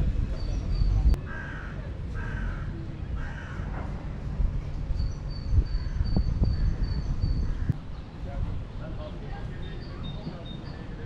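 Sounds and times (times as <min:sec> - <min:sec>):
crow cawing: 0:01.3 - 0:03.7.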